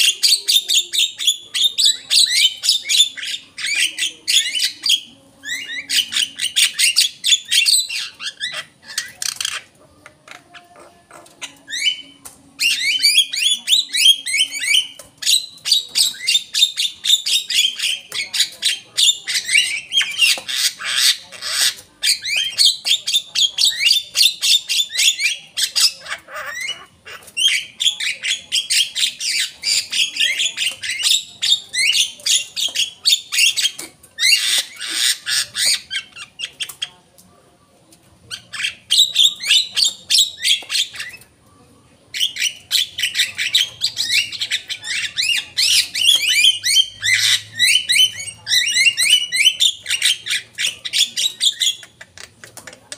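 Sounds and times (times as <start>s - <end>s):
myna singing chattering song: 0.0s - 18.0s.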